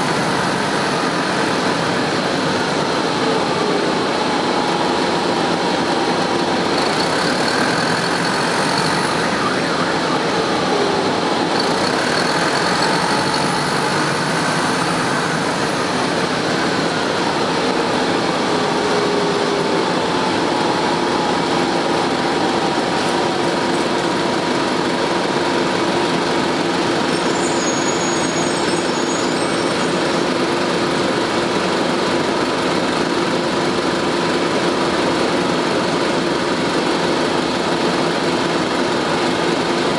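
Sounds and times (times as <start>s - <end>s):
whining tones: 0.0s - 30.5s
bus engine running: 0.0s - 39.9s.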